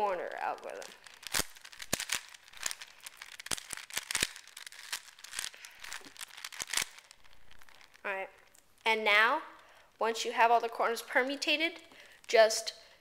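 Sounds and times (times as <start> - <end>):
plastic cube clicking: 0.7 - 8.0.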